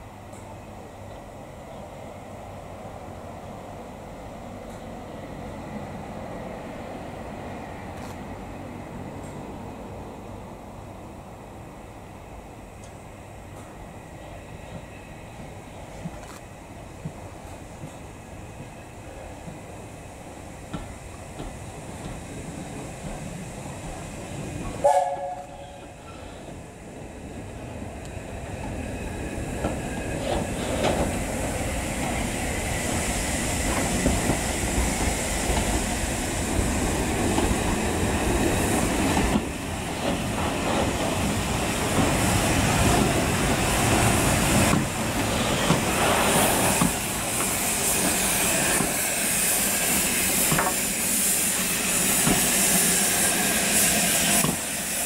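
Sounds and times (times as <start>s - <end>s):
steam whistle blast: 24.8s - 25.9s
steam locomotive clattering over rails: 28.6s - 55.0s
steam hiss: 29.0s - 55.0s.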